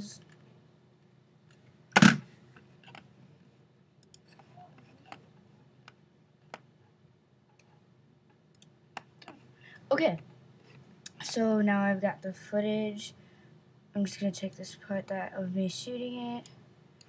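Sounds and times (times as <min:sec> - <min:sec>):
computer mouse clicks: 0:04.0 - 0:05.2.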